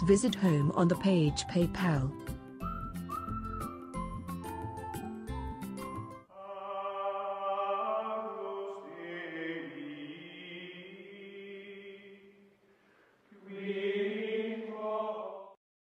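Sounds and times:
chant-like vocal music: 6.3s - 12.5s, 13.3s - 15.6s.

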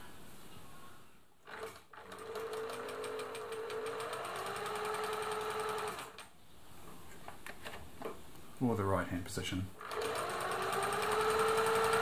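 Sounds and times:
sewing machine stitching: 1.4s - 6.3s, 9.8s - 12.0s.

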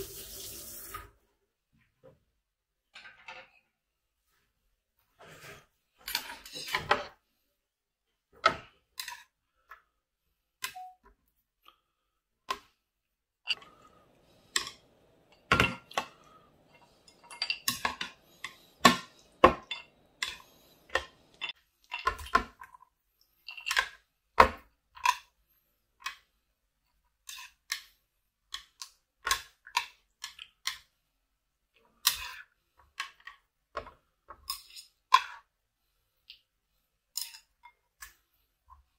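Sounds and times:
utensils clinking on ceramic bowls: 13.5s - 22.3s.

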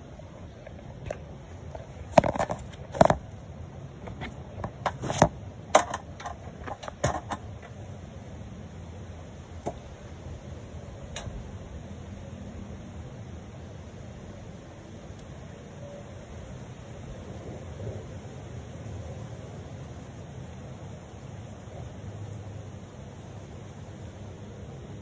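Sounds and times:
clicks and knocks on steel mesh: 4.0s - 7.8s.

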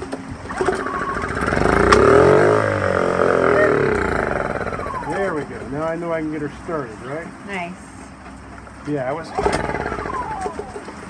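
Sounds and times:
generator engine firing: 0.4s - 6.0s, 9.2s - 11.0s.

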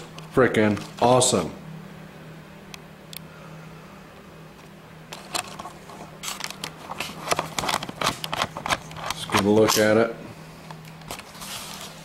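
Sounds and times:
steady low hum: 0.0s - 12.0s
irregular clicks and crackles: 4.6s - 10.0s.

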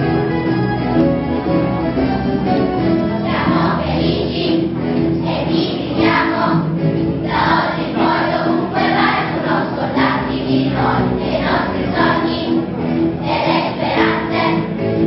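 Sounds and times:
children's choir singing: 3.0s - 15.0s.

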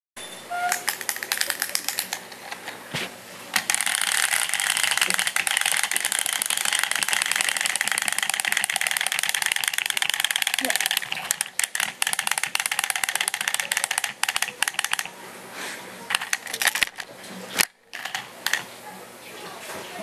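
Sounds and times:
wind-up toy clicks: 0.7s - 2.2s, 3.6s - 15.1s, 16.1s - 17.0s, 17.6s - 18.7s
spring motor whirring: 3.6s - 15.1s.

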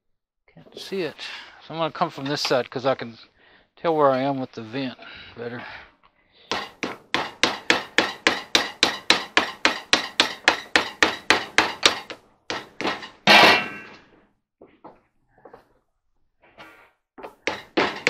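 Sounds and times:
ringing metal clang: 12.9s - 14.0s.

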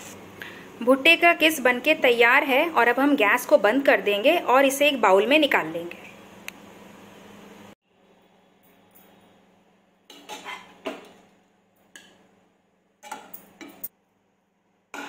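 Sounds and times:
metal spatula scraping a pan: 10.1s - 11.1s.

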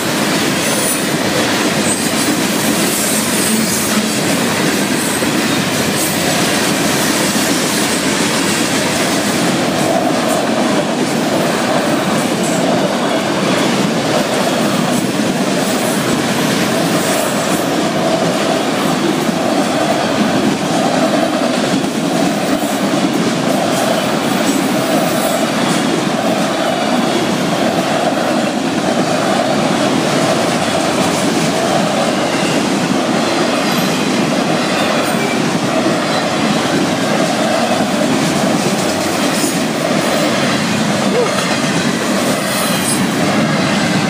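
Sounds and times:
train wheels on rails: 0.0s - 44.0s.

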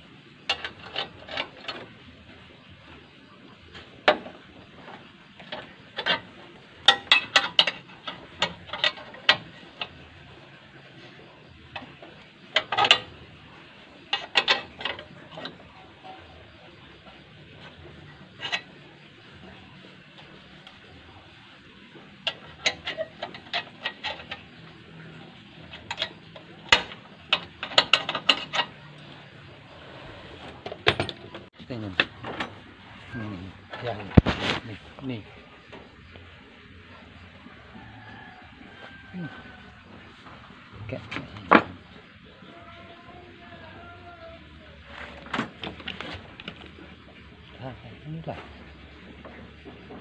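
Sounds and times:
steel bar clinking on metal: 6.8s - 10.0s.

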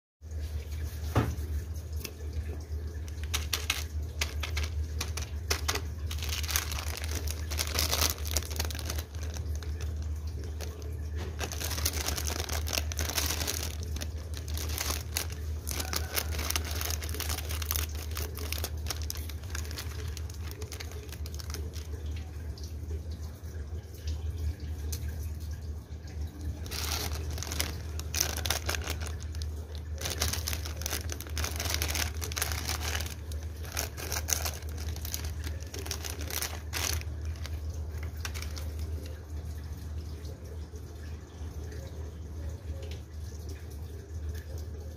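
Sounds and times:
plastic packets crinkling: 2.8s - 22.3s, 26.5s - 39.3s
scissors cutting plastic packet: 3.1s - 21.9s, 26.7s - 39.0s.

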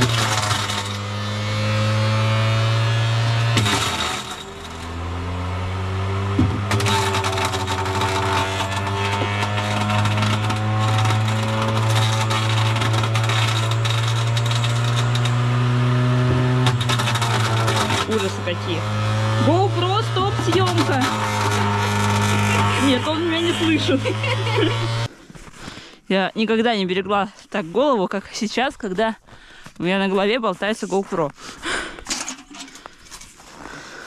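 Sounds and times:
apple pieces rattling: 0.0s - 1.3s, 3.5s - 5.1s, 6.6s - 15.5s, 16.3s - 18.4s
fruit crusher motor hum: 0.0s - 25.1s.

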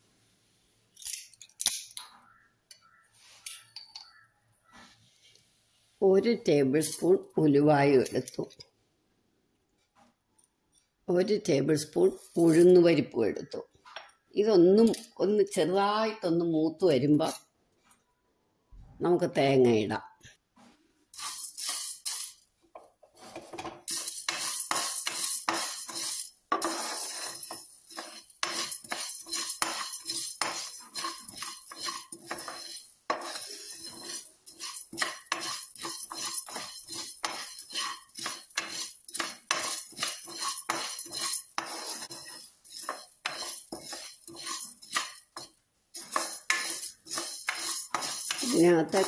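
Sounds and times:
wooden spatula scraping pan: 6.8s - 7.2s, 12.0s - 12.8s, 20.6s - 49.0s
seeds rattling while roasting: 21.1s - 22.5s, 23.2s - 49.0s.

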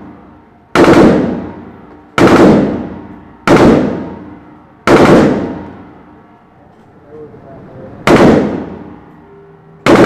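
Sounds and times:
rifle firing bursts indoors: 0.8s - 1.4s, 2.2s - 2.8s, 3.5s - 4.1s, 4.9s - 5.6s.

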